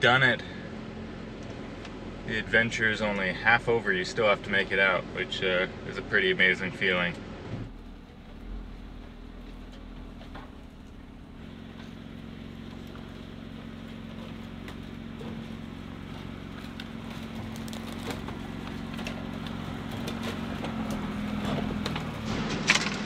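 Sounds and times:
car engine running slowly: 0.0s - 23.0s
twigs snapping under tyres: 8.9s - 23.0s.

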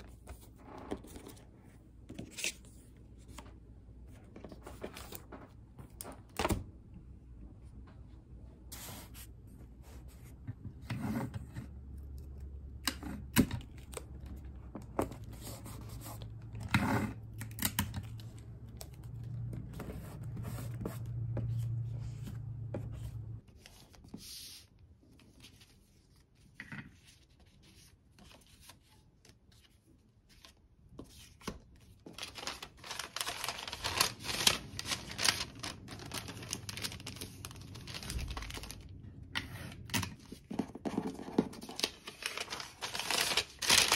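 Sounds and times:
paper sliding and rustling: 32.1s - 38.8s.

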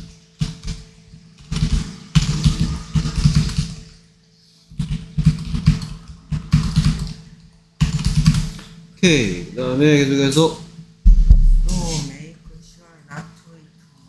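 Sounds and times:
typing on computer keyboard: 4.8s - 7.2s, 7.8s - 8.5s.

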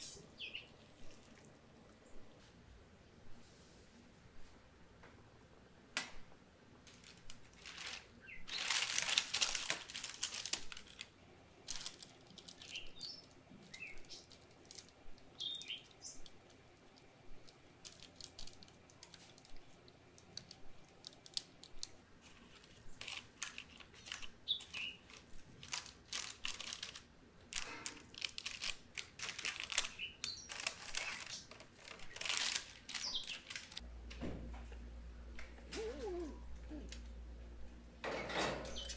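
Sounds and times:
parchment paper crinkling: 6.8s - 33.8s.

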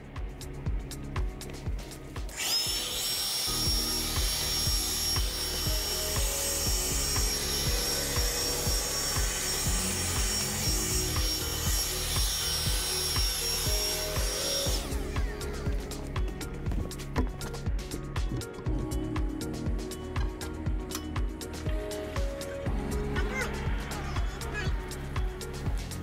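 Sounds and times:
leaf blower whining: 2.3s - 16.2s.

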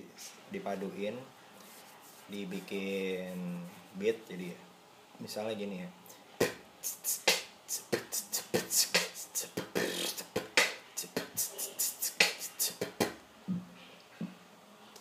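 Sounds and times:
person beatboxing: 6.4s - 13.6s.

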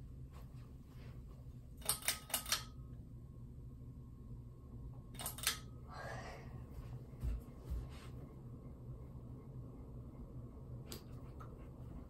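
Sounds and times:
ceiling fan humming: 0.0s - 12.0s
pull-chain switch clicks: 1.8s - 2.8s, 5.2s - 5.6s.

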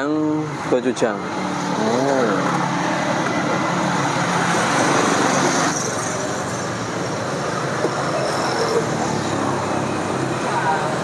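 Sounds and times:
road traffic noise: 0.0s - 11.0s.

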